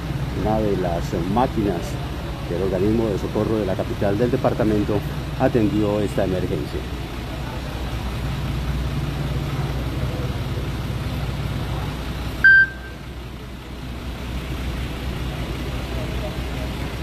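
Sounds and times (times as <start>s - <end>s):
vehicle engine idling: 0.0s - 17.0s
short electronic beep: 12.4s - 13.0s.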